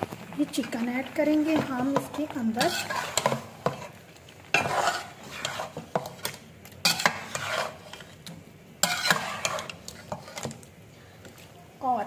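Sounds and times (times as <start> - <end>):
metal spoon scraping a pot: 1.5 - 10.7.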